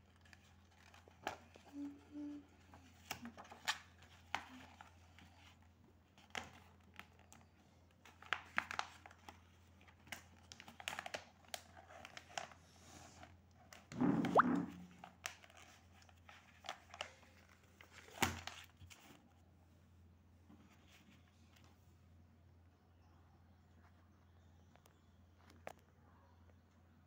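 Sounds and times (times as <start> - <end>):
notebook pages crinkling: 0.0 - 2.0, 2.6 - 13.9.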